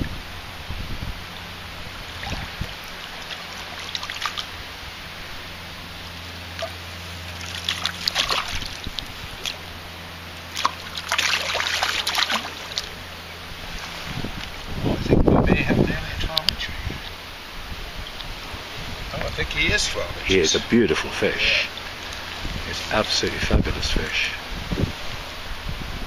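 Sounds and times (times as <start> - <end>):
fish thrashing in water: 2.0 - 4.9, 6.4 - 14.7.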